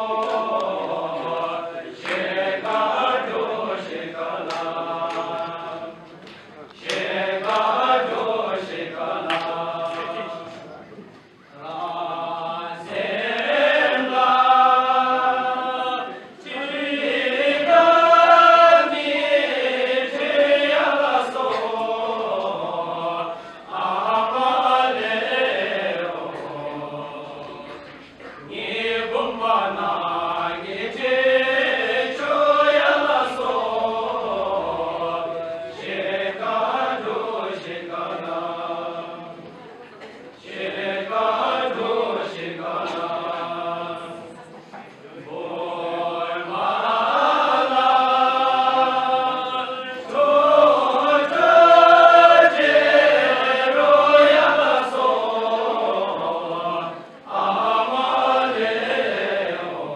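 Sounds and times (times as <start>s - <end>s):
group singing in unison: 0.0s - 59.9s.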